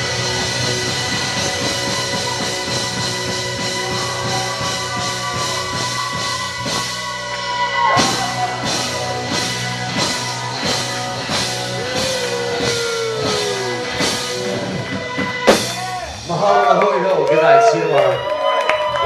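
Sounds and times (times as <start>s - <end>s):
drum kit beating: 0.0s - 17.6s
bass guitar: 0.0s - 19.0s
electric guitars: 0.0s - 19.0s.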